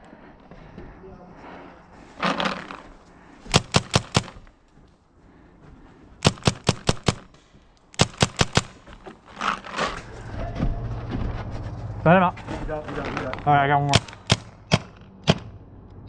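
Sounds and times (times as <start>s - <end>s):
paintball marker firing bursts: 3.5s - 4.5s, 6.2s - 8.9s, 13.8s - 15.5s.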